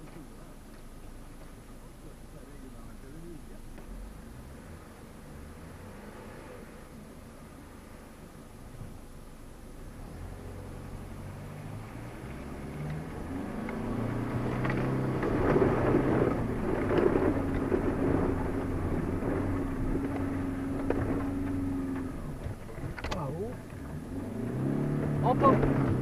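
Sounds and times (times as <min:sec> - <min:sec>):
off-road vehicle engine under load: 0:00.0 - 0:26.0
tyres churning through mud: 0:11.3 - 0:26.0.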